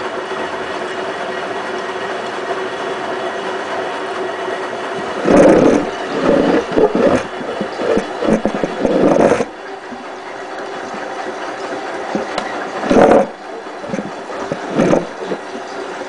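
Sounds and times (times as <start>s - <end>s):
washing machine motor hum: 0.0s - 16.0s
water sloshing in drum: 4.9s - 16.0s.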